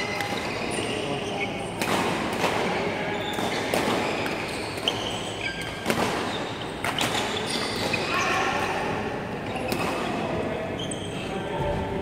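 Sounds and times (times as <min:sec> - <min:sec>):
rackets striking shuttlecocks: 0:01.8 - 0:08.0
sneakers squeaking on court: 0:03.1 - 0:08.2.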